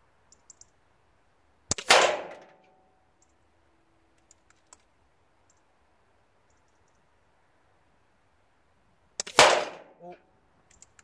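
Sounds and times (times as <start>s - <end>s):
faint clicks: 0.2s - 0.8s, 2.6s - 3.4s, 4.1s - 5.7s, 6.4s - 7.1s, 10.6s - 11.0s
air rifle shot: 1.7s - 2.5s, 9.2s - 10.0s.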